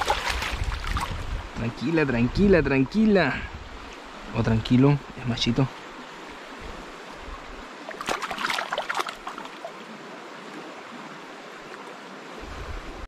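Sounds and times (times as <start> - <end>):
fish splashing in shallow water: 0.0 - 1.4, 7.7 - 10.7
stream running: 0.0 - 13.0.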